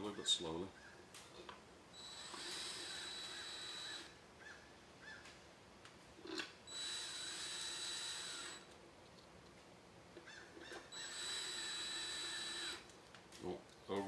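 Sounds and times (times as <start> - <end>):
cordless drill whining: 1.9 - 4.2, 6.3 - 8.8, 10.6 - 12.9.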